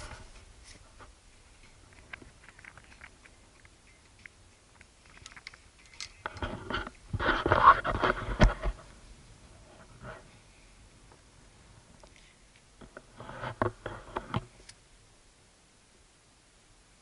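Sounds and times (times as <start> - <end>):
camera handling clicks and rustles: 3.9 - 8.7.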